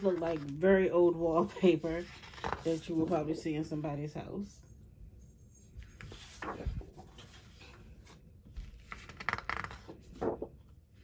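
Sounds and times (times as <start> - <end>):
paper sheets rustling and sliding: 0.0 - 3.4, 5.9 - 10.7.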